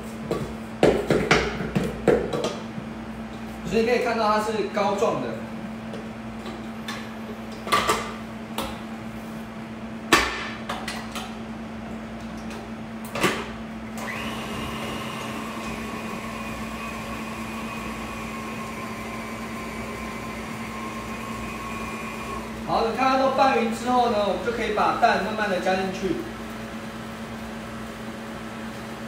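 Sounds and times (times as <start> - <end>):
mixer motor whine: 13.8 - 25.5.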